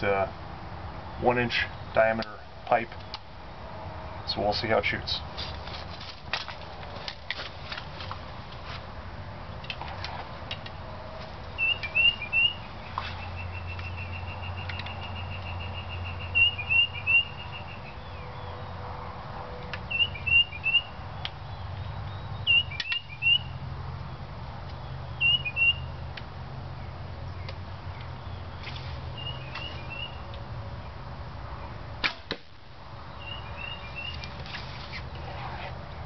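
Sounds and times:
songbird chirping: 0:10.6 - 0:26.1, 0:26.7 - 0:31.0, 0:33.0 - 0:36.0
crack: 0:32.0 - 0:32.6.

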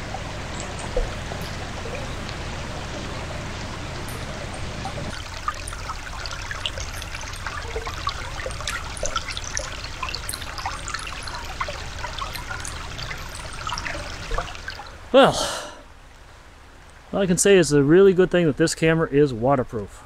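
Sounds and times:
brook trickling over rocks: 0:00.0 - 0:15.1
water gurgles: 0:00.0 - 0:15.8.

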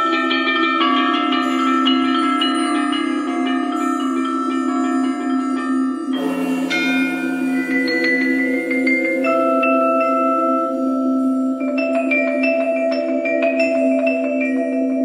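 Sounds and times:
vibraphone notes ringing: 0:00.0 - 0:15.0
low drone: 0:02.2 - 0:12.6.

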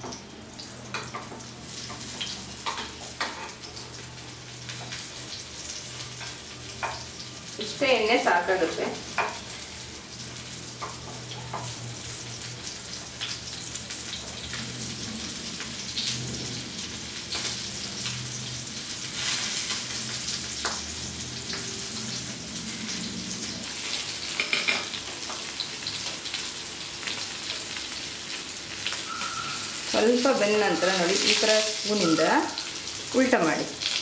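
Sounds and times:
fish sizzling in a pan: 0:00.0 - 0:34.0.

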